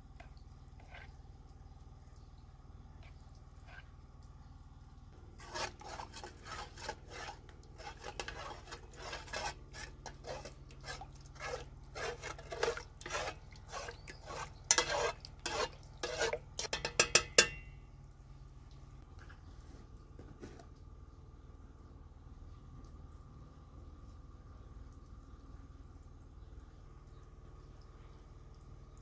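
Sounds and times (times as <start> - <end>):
metal spoon scraping a pot: 0.7 - 1.1, 5.4 - 17.7
spoon clinking on pot: 16.6 - 17.8.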